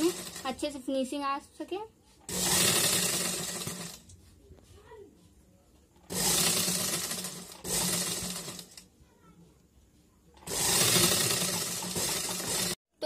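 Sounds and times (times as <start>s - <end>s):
sewing machine stitching: 0.0s - 0.6s, 2.2s - 4.2s, 6.0s - 8.9s, 10.4s - 12.8s.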